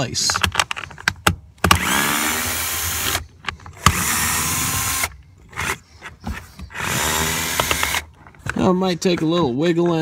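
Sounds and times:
cordless drill spinning screws: 0:01.7 - 0:06.1, 0:06.7 - 0:08.2.

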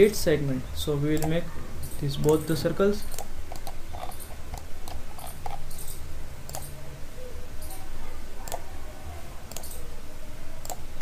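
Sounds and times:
computer mouse clicking: 0:01.1 - 0:01.4, 0:02.2 - 0:06.8, 0:08.4 - 0:08.7, 0:09.5 - 0:09.8, 0:10.6 - 0:11.0.

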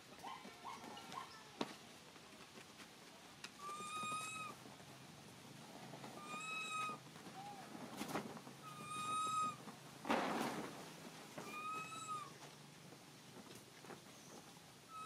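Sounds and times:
animal calling high pitch: 0:03.6 - 0:04.6, 0:06.2 - 0:07.0, 0:08.6 - 0:09.6, 0:11.4 - 0:12.4.

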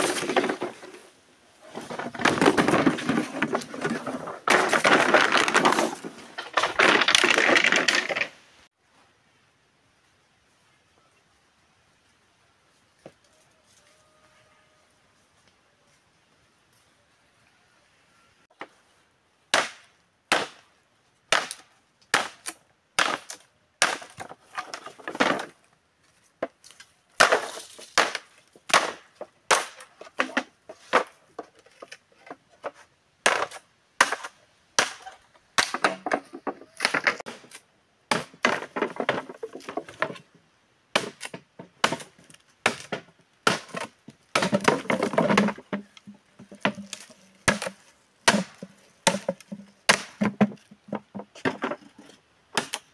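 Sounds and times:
bamboo rustling and splintering: 0:00.0 - 0:08.4, 0:21.3 - 0:52.9
machete chopping bamboo: 0:19.5 - 0:20.6, 0:21.3 - 0:24.2, 0:27.2 - 0:29.9, 0:33.2 - 0:36.1, 0:36.8 - 0:38.6, 0:41.0 - 0:45.6, 0:46.6 - 0:50.6, 0:52.6 - 0:52.9.

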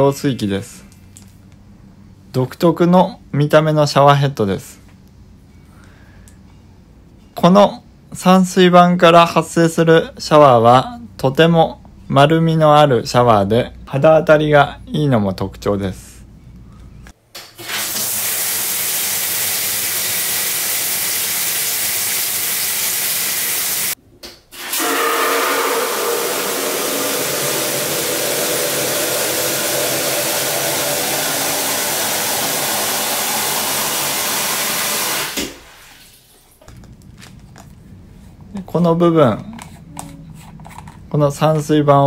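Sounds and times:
shower head spraying water: 0:17.6 - 0:24.0, 0:24.6 - 0:35.9.

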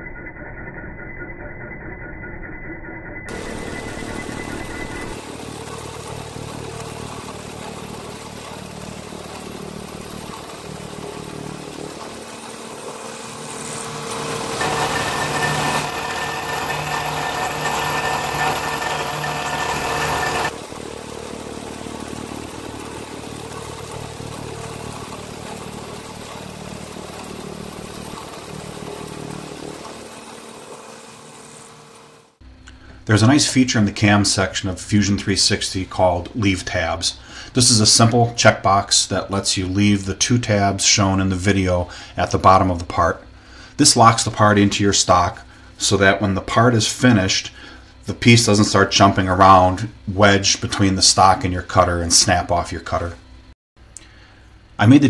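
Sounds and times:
milling machine cutting metal: 0:03.3 - 0:32.4.

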